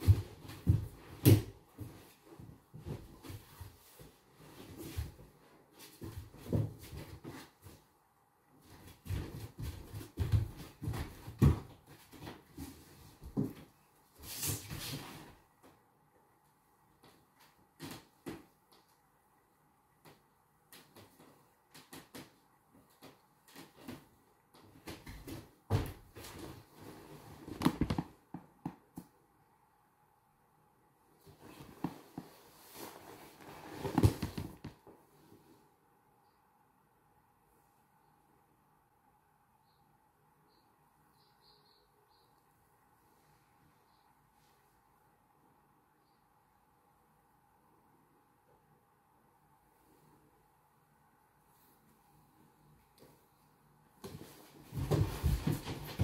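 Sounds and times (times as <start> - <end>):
bare feet thumping on hardwood floor: 27.5 - 28.8, 54.0 - 56.0.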